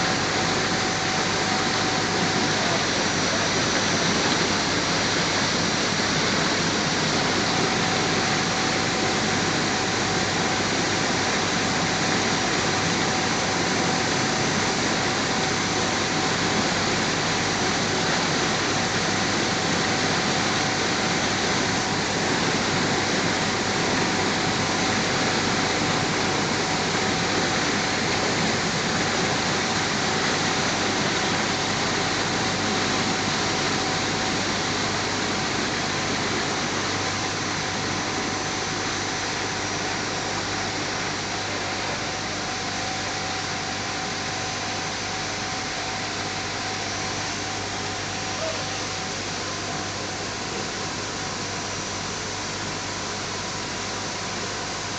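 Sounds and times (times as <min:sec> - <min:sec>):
rushing hiss of water jetting: 0:00.0 - 0:51.6
faint steady whine: 0:00.0 - 0:54.9.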